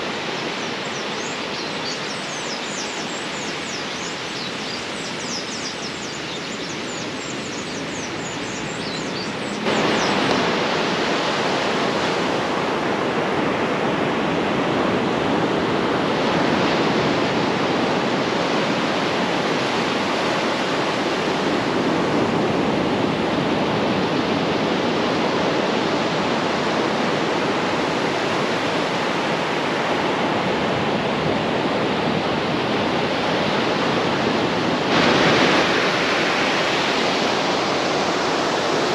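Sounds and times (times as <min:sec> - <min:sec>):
sea surf breaking on beach: 0:00.0 - 0:38.9
birds chirping: 0:00.3 - 0:10.9.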